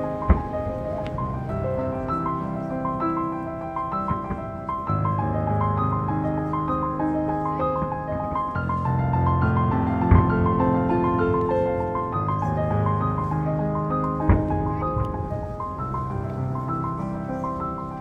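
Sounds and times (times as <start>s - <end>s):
piano music: 0.0s - 18.0s
low thump: 9.7s - 10.6s.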